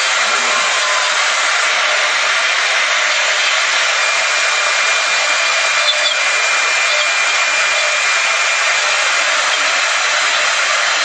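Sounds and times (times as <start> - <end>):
router spindle whirring hiss: 0.0 - 11.0.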